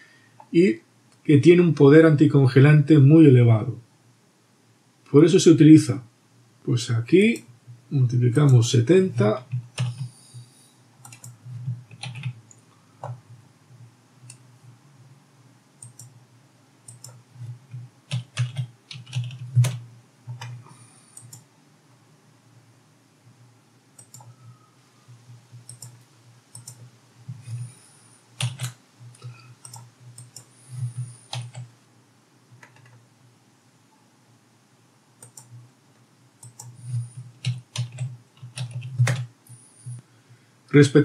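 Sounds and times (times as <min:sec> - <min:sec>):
computer keyboard typing: 0:08.4 - 0:10.4, 0:11.0 - 0:13.2, 0:16.9 - 0:21.4, 0:24.0 - 0:24.4, 0:25.2 - 0:27.8, 0:28.4 - 0:31.7, 0:32.6 - 0:33.0, 0:35.2 - 0:35.6, 0:36.4 - 0:39.3.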